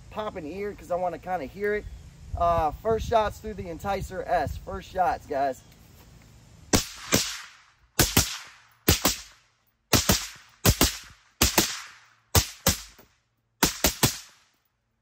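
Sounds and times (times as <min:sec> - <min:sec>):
suppressed rifle shots: 0:06.7 - 0:13.0, 0:13.6 - 0:14.4.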